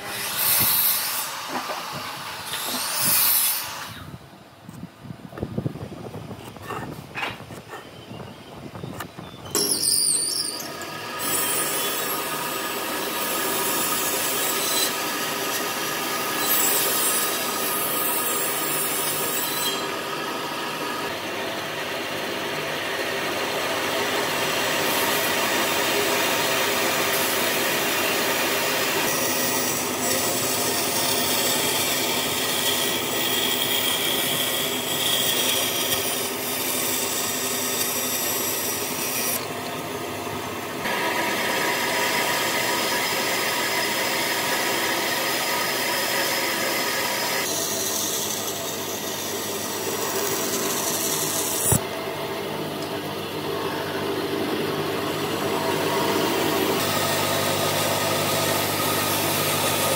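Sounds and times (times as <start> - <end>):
power tools machining wood: 9.5 - 39.8, 40.8 - 52.0, 53.6 - 59.9.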